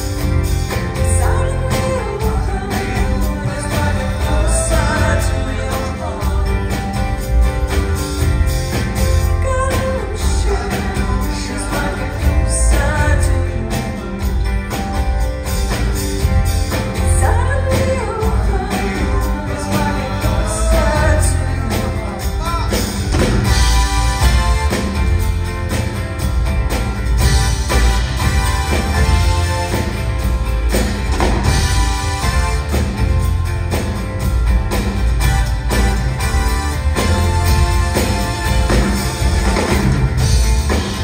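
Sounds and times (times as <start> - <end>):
live band playing: 0.0 - 41.0
woman singing: 0.9 - 7.0, 9.2 - 14.0, 17.0 - 22.2.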